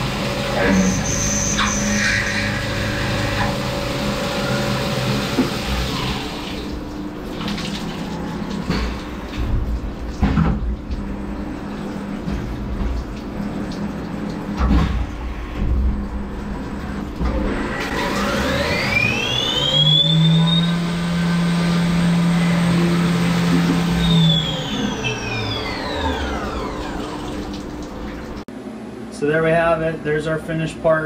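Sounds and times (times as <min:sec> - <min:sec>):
coolant splashing: 0:00.0 - 0:28.5
spindle whine: 0:00.0 - 0:28.5.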